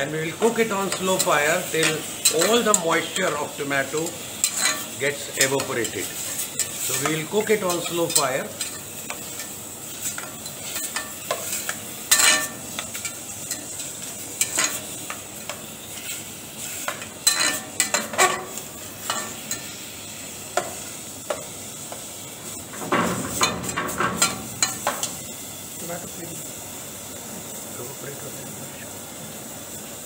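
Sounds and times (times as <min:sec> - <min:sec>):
sauce sizzling: 0:00.0 - 0:30.0
metal spatula scraping a pan: 0:04.0 - 0:15.0, 0:15.9 - 0:19.7.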